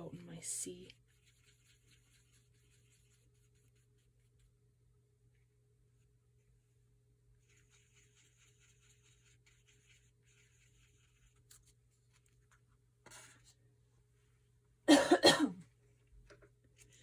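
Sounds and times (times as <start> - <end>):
paintbrush scrubbing on paper plate: 0.5 - 4.6, 7.4 - 13.5
person coughing: 14.9 - 15.6.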